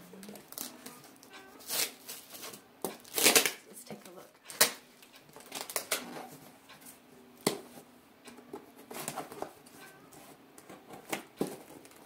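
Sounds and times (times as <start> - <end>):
cardboard scraping and rustling: 8.6 - 12.0.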